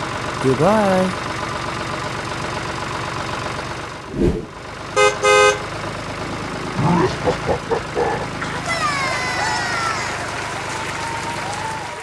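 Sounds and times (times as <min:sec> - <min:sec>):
model tractor engine running: 0:00.0 - 0:04.0.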